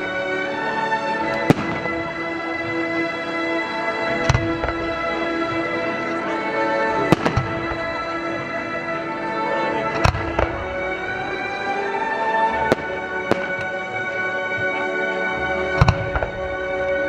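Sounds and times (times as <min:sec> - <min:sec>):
music with long held tones: 0:00.0 - 0:17.0
fireworks bursting with bangs: 0:01.3 - 0:03.0, 0:04.1 - 0:05.5, 0:07.0 - 0:08.6, 0:09.8 - 0:11.6, 0:12.4 - 0:17.0.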